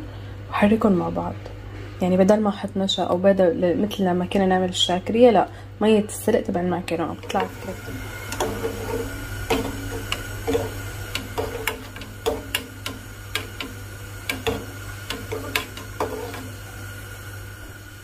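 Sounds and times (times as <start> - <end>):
steady low hum: 0.0 - 18.0
whisk clicking against pot: 7.2 - 16.7.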